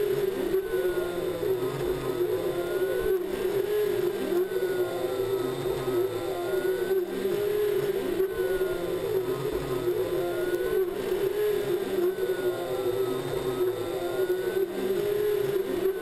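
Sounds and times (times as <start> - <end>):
stepper motors whining: 0.0 - 16.0.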